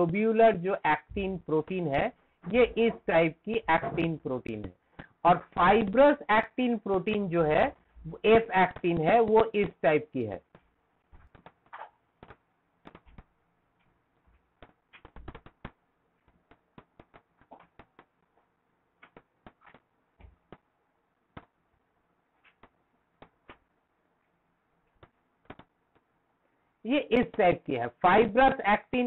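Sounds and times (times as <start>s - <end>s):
stylus tapping on tablet: 8.1s - 9.8s, 10.5s - 18.2s, 19.0s - 20.7s, 21.3s - 21.6s, 22.4s - 23.7s, 24.9s - 26.1s.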